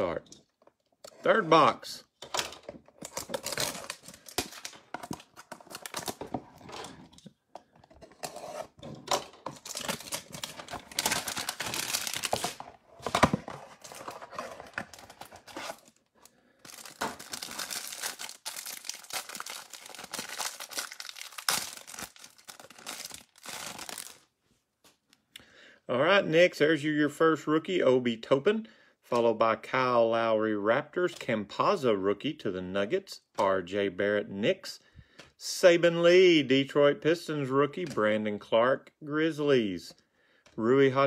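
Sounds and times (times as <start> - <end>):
plastic wrap crinkling: 9.4 - 24.3
cardboard tearing: 9.6 - 16.0, 16.7 - 24.2.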